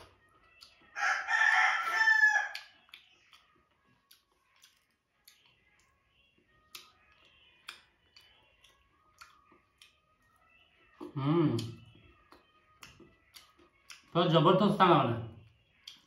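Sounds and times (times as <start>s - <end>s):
rooster crowing: 1.0s - 2.7s.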